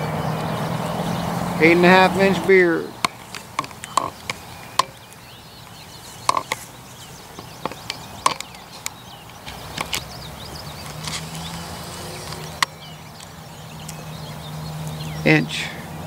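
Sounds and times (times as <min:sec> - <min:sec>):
gear handling clicks and knocks: 0:06.2 - 0:06.7, 0:07.4 - 0:10.1.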